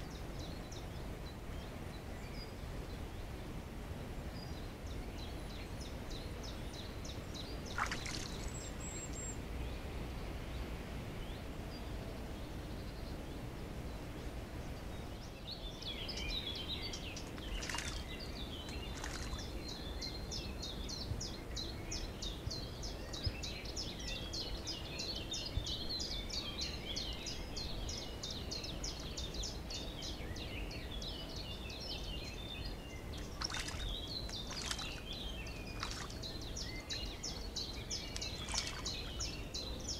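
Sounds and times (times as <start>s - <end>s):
low background hiss: 0.0s - 39.9s
birds singing: 4.3s - 39.9s
sharp bird calls: 17.1s - 19.6s, 33.0s - 39.9s.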